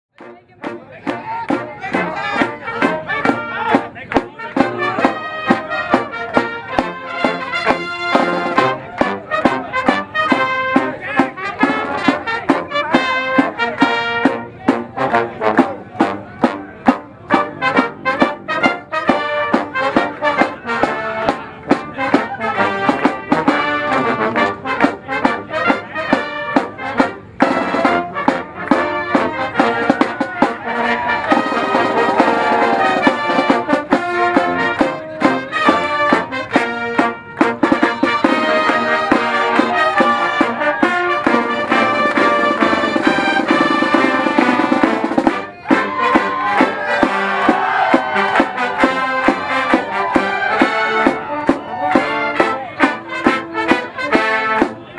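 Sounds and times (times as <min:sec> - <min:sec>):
brass marching band playing: 0:00.1 - 0:54.9.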